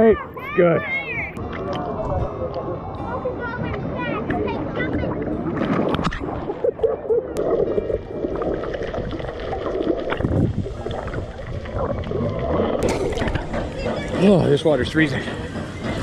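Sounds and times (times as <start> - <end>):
underwater gurgling and bubbling: 5.0 - 13.9.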